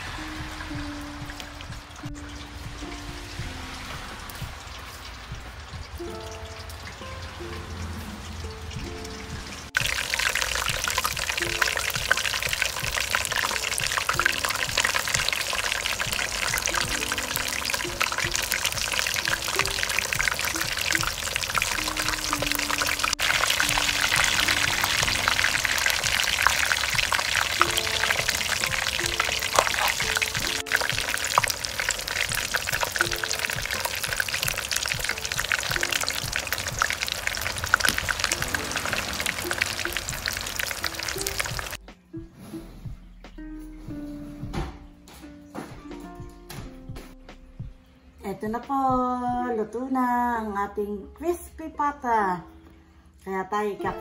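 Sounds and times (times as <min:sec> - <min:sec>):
meat deep-frying in oil: 0:00.0 - 0:41.8
soft background music: 0:00.0 - 0:54.0.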